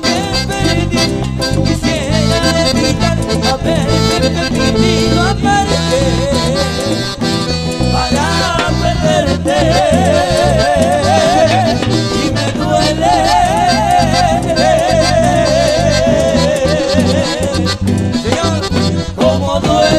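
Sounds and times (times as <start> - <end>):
cumbia band playing live: 0.0 - 19.9
vibrato lead melody: 0.0 - 19.9.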